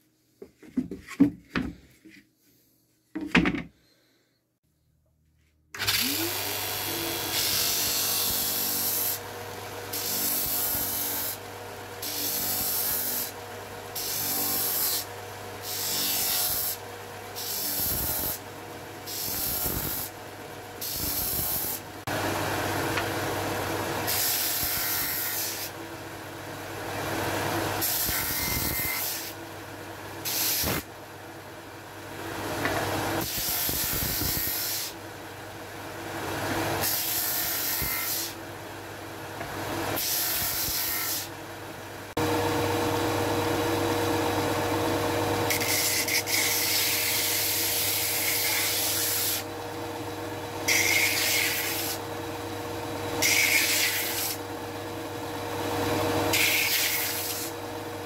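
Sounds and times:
board set down knock: 3.2 - 3.7
sander humming: 42.2 - 47.3.

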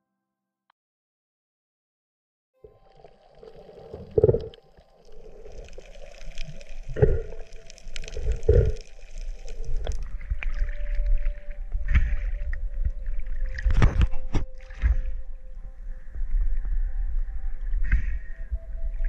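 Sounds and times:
muffled water sloshing underwater: 2.6 - 19.0
faint crackling: 2.7 - 14.3.

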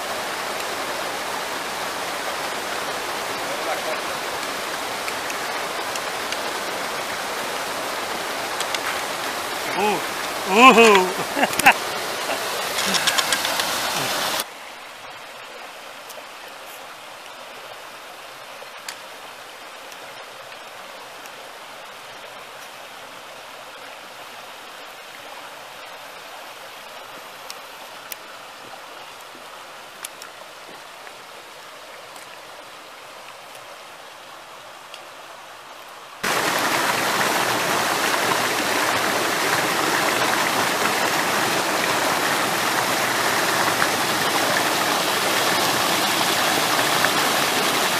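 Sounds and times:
stream rushing over rocks: 0.0 - 47.9
faint clicks: 12.6 - 14.0.

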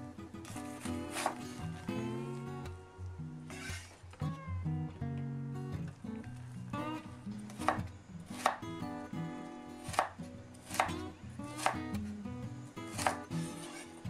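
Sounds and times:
knife chopping on wooden board: 1.1 - 1.4, 8.4 - 8.6, 9.8 - 11.8, 13.0 - 13.8.

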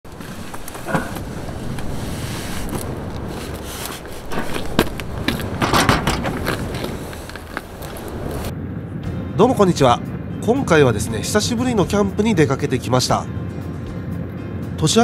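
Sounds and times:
wind buffeting microphone: 0.1 - 12.6
cooler box knocking and clattering: 5.4 - 6.6.

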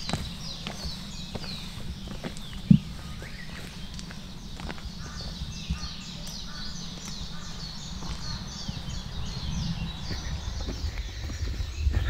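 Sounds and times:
birds chirping: 0.0 - 12.0
low rumble: 2.7 - 12.0.

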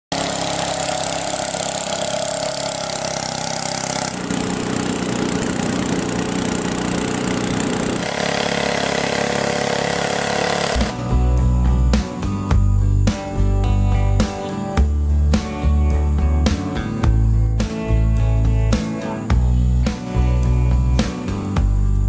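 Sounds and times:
boat engine running: 0.1 - 12.2.

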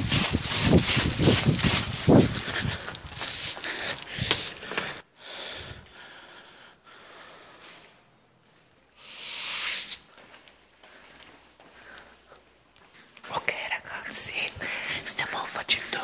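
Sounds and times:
breathy hiss: 2.6 - 8.0, 8.9 - 10.2.

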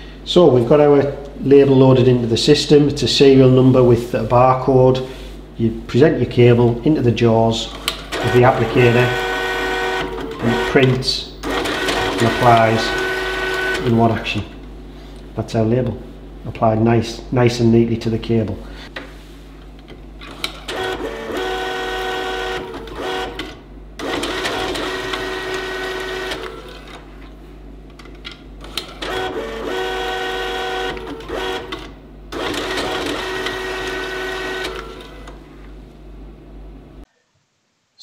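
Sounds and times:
harsh machine whirring: 7.6 - 14.6, 20.2 - 27.3, 28.6 - 35.4
label printer motor whine: 7.7 - 14.4, 20.2 - 27.3, 28.6 - 35.5.

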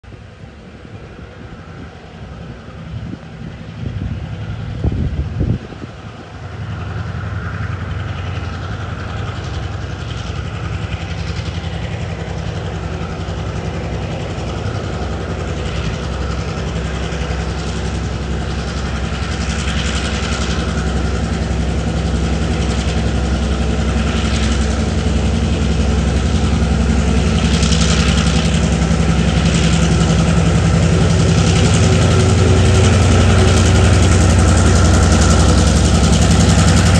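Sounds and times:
locomotive engine drone: 0.0 - 36.9.

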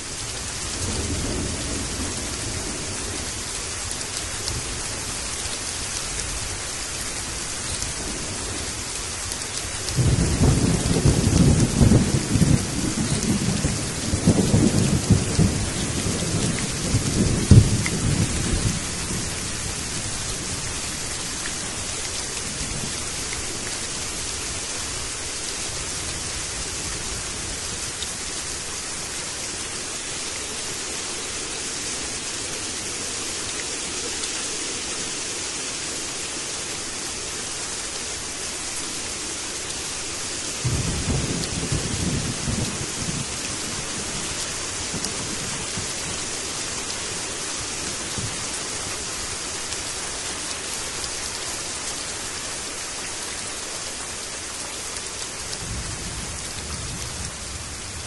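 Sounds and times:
rain on leaves and brick: 0.0 - 58.0
thunder rumbling: 10.0 - 20.0, 40.6 - 44.2, 55.6 - 58.0.

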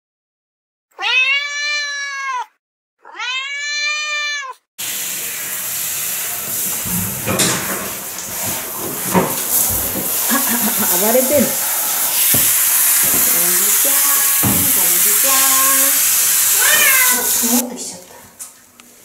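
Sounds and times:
cat meowing: 0.9 - 4.7, 16.5 - 17.5
shower spraying water: 4.8 - 19.0.

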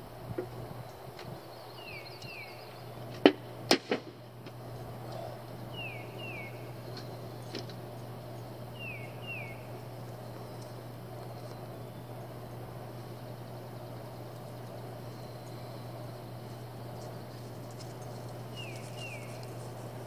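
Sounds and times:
steady low hum: 0.0 - 20.0
bird chirping: 1.4 - 3.1, 5.1 - 7.6, 8.7 - 12.4, 18.5 - 19.7.

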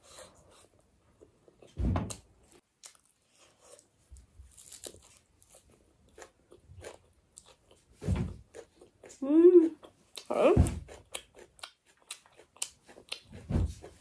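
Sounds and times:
person chewing crunchy food: 0.2 - 14.0
dull thump: 1.8 - 2.2, 8.0 - 8.4, 10.6 - 10.9, 13.4 - 13.9.

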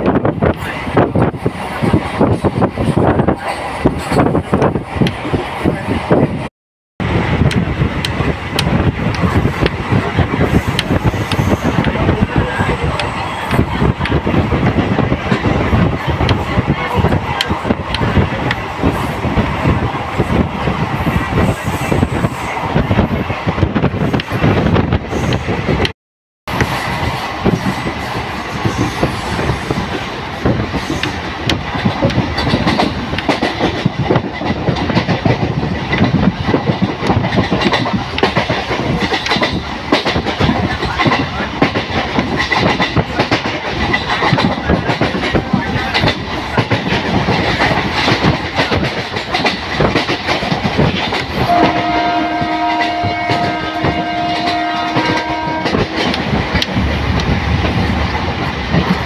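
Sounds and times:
train rumble: 0.0 - 25.9, 26.5 - 59.0
train wheels clattering: 26.5 - 59.0
train horn: 51.4 - 56.2.

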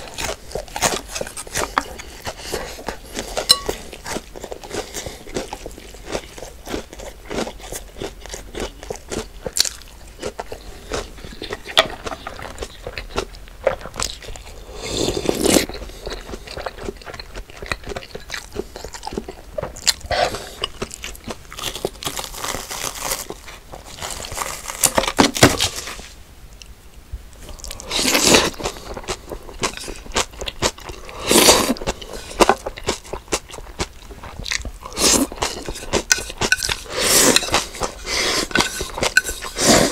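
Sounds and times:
person chewing crunchy food: 0.0 - 26.1, 27.4 - 39.9.

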